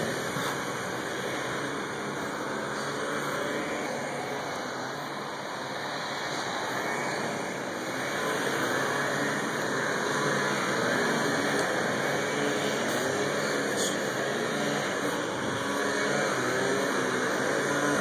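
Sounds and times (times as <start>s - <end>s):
motor vehicle on road: 0.0s - 18.0s
steady outdoor hiss: 0.0s - 18.0s.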